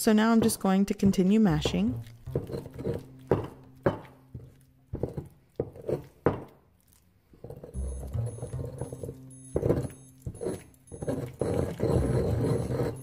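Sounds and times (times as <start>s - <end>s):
stone pestle knocking in bowl: 0.4s - 6.6s.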